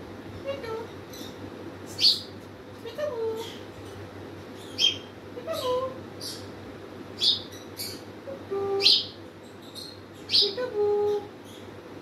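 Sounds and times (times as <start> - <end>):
parrot chirping: 1.1 - 2.3, 4.6 - 6.5, 7.2 - 8.1, 8.8 - 11.7.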